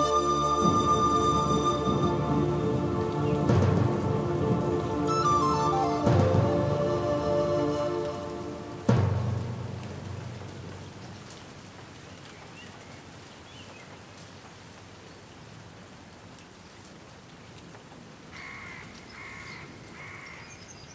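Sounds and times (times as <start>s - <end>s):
soft steady hiss: 0.0s - 20.9s.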